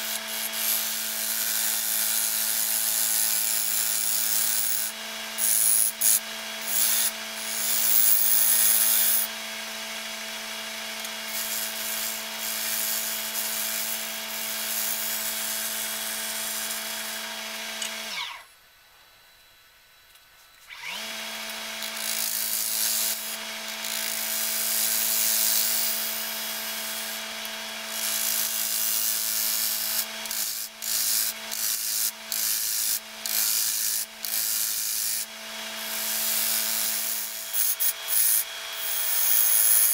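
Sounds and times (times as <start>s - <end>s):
gouge cutting spinning wood: 20.7s - 39.9s.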